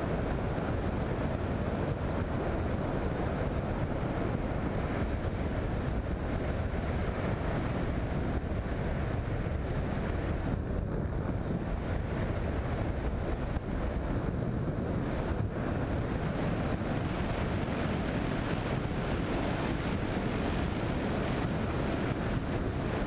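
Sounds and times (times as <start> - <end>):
wind rushing over microphone: 0.0 - 23.0.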